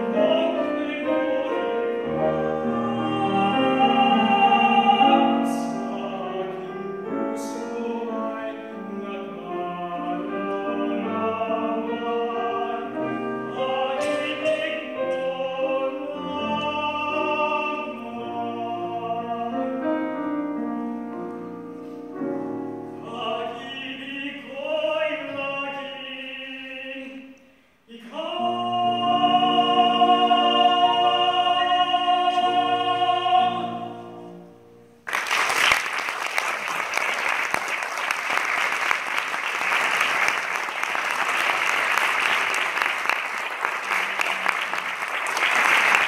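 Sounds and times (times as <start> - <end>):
man singing classical: 0.0 - 21.8, 22.6 - 34.7
grand piano: 0.0 - 46.0
audience applause: 35.1 - 46.0.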